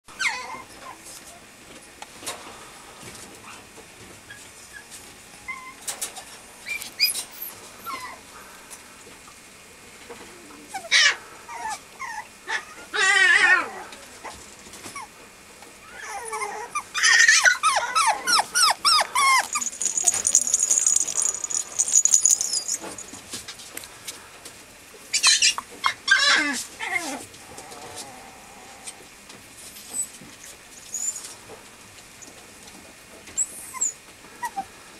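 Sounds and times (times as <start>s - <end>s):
puppy whining: 15.9s - 23.1s.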